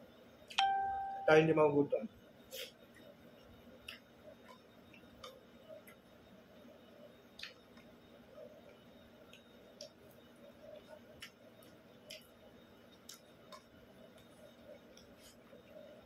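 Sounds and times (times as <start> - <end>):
chewing sounds: 10.7 - 14.3.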